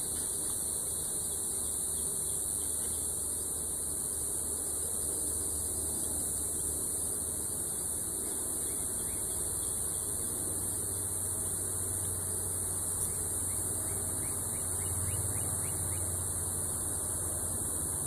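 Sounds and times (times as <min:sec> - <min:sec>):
steady high hiss: 0:00.0 - 0:18.0.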